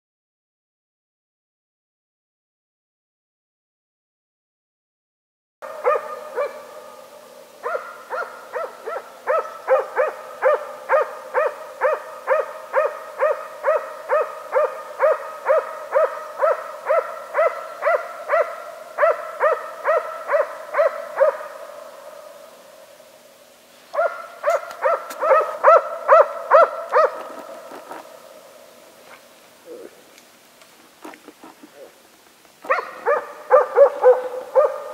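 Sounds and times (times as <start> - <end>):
dog barking with echo: 5.6 - 21.8, 24.0 - 27.3, 32.6 - 34.9.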